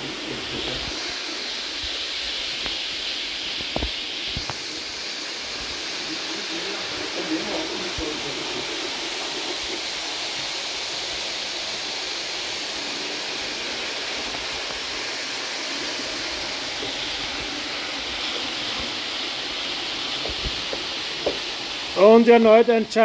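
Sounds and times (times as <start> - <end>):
model trains running on track: 4.7 - 23.0.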